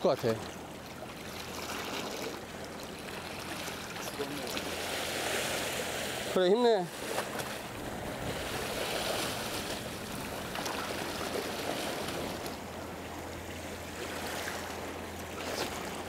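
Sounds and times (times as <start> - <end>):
sea water washing against rocks: 1.3 - 12.7.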